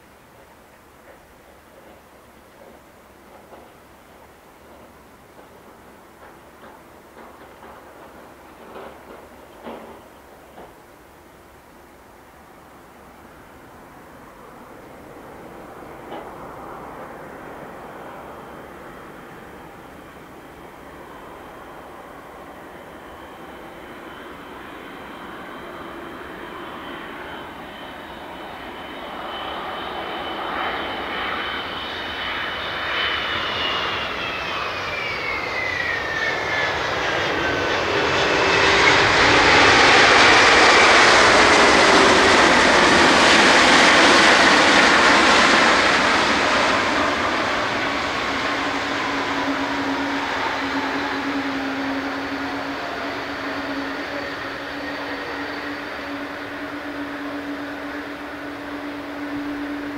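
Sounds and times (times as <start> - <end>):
jet engines landing: 0.0 - 59.9
high whine sliding down: 14.6 - 59.9.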